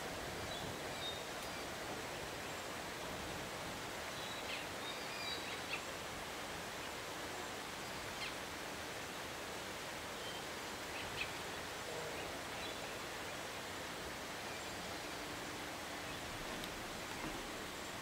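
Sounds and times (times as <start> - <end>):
outdoor background hiss: 0.0 - 18.0.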